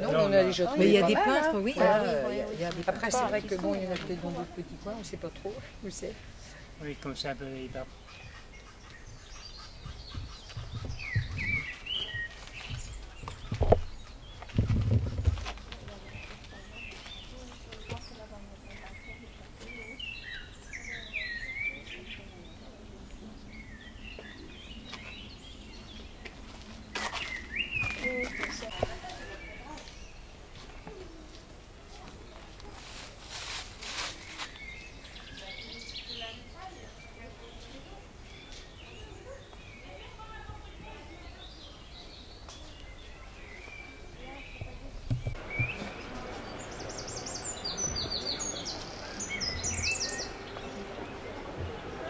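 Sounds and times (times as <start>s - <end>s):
faint distant voices: 0.0s - 52.0s
small bird chirping: 6.9s - 31.2s, 32.8s - 51.4s
low thumps: 9.8s - 11.7s, 12.7s - 15.8s, 44.6s - 46.6s
short scraping rustling strokes: 32.7s - 34.8s.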